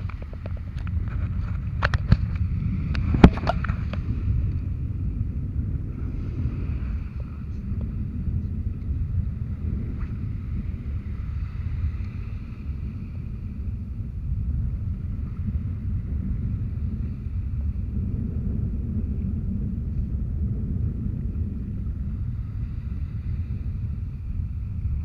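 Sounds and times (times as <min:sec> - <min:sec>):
wind buffeting microphone: 0:00.0 - 0:25.0
small waves washing: 0:05.9 - 0:18.0.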